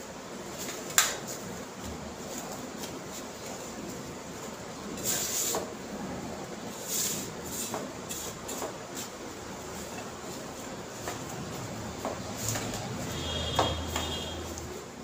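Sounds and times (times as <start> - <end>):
steady hiss: 0.0 - 15.0
hand mixing dough in bowl: 6.6 - 14.8.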